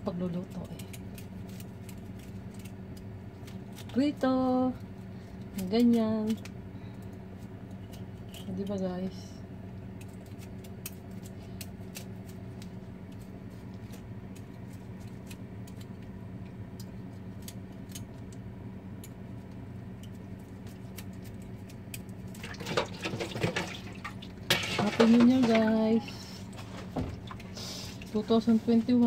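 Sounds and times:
low electrical hum: 0.0s - 29.0s
clattering in sink: 22.4s - 27.4s.

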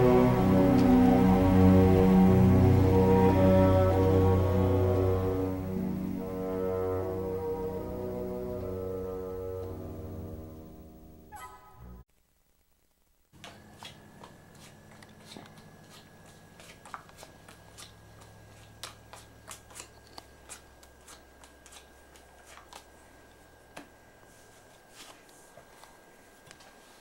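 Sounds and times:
low hum: 0.0s - 12.0s
thin high whine: 0.0s - 12.0s
playing cards shuffled: 18.6s - 22.9s.

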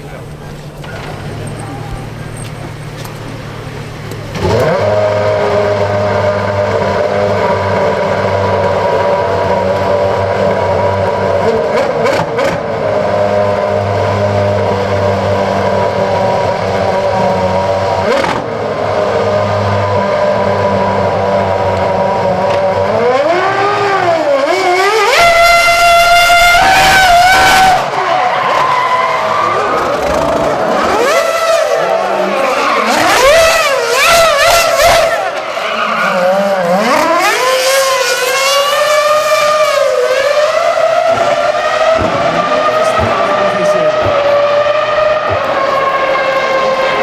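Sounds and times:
racing car engine revving: 0.0s - 47.0s.

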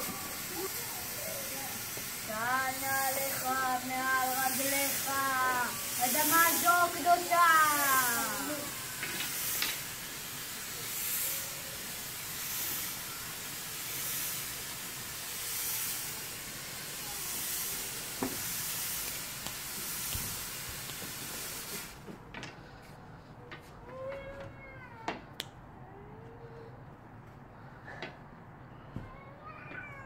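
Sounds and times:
fog machine hissing: 0.0s - 22.1s.

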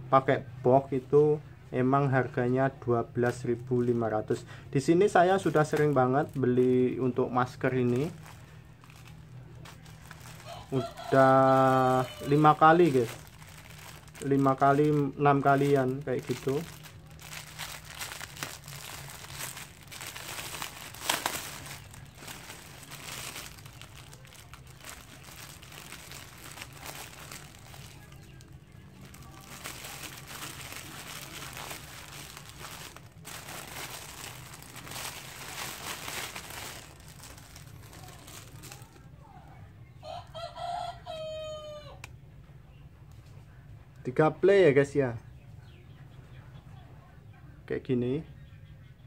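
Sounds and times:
plastic wrap crinkling: 5.0s - 39.1s.

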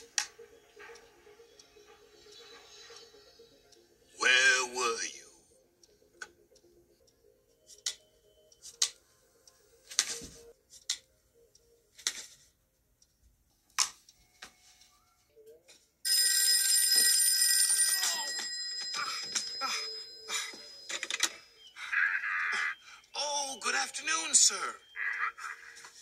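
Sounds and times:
telephone bell ringing: 16.1s - 22.6s.

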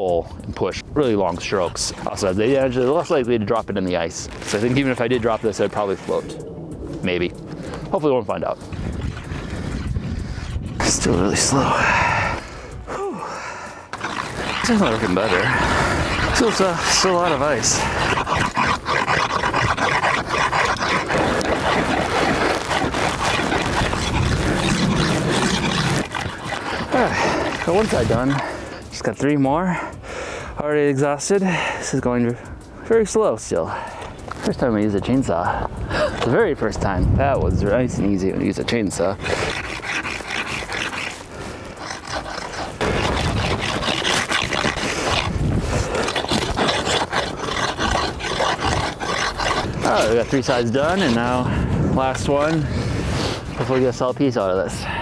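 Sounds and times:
saw rasping through ice: 4.1s - 6.3s, 13.9s - 29.1s, 38.5s - 54.1s.

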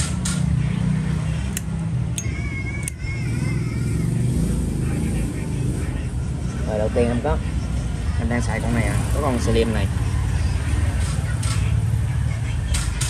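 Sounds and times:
street traffic rumble: 0.0s - 13.0s
sharp clicks: 1.5s - 3.0s.

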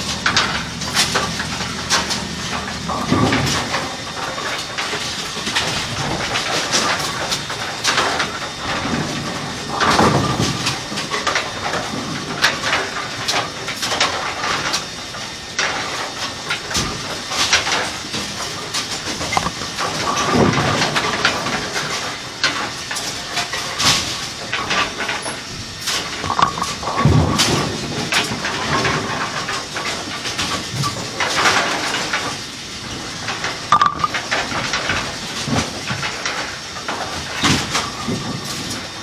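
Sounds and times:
rubbing and knocks of pins: 16.7s - 38.9s.

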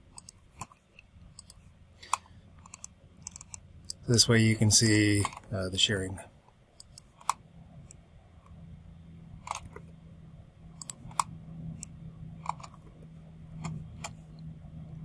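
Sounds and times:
low steady hum: 0.0s - 15.0s
mouse and keyboard clicks: 0.1s - 4.0s, 5.2s - 5.5s, 6.8s - 8.0s, 9.4s - 9.9s, 10.8s - 13.0s, 13.6s - 14.2s.

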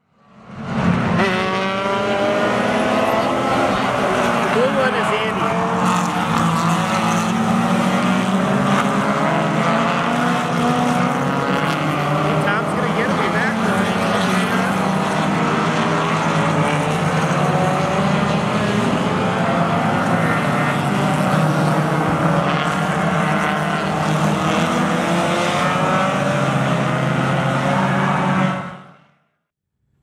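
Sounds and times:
race car engines: 0.0s - 29.2s.

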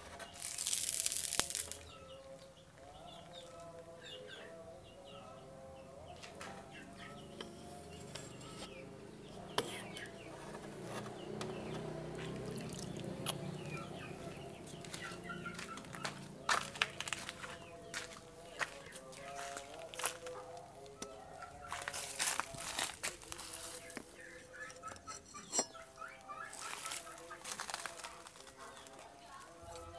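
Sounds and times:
small birds chirping: 0.2s - 29.9s
chickens clucking: 6.0s - 29.9s.

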